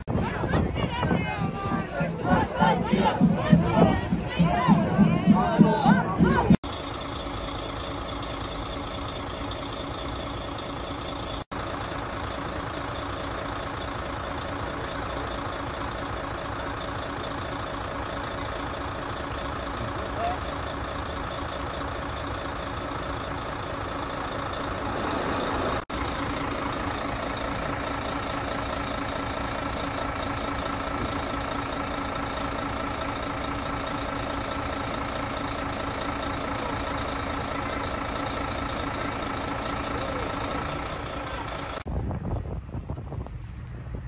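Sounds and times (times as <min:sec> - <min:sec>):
crane engine running: 0:00.0 - 0:44.0
wind buffeting microphone: 0:41.9 - 0:44.0.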